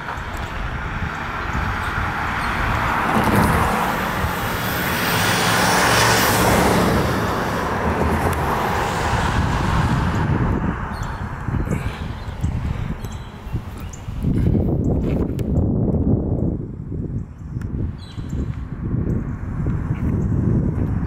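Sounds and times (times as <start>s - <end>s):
vehicle passing: 0.0s - 15.6s
steady traffic noise: 0.0s - 21.0s.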